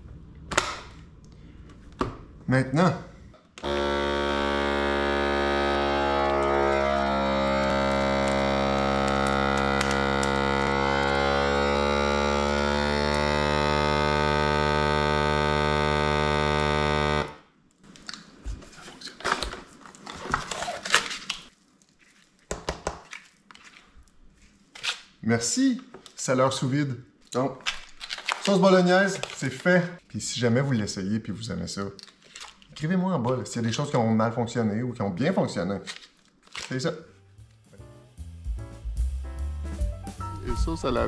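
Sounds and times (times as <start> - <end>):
vacuum sealer pump humming: 3.6 - 17.4
plastic bag crinkling: 27.6 - 29.9, 31.9 - 33.0, 35.9 - 36.9.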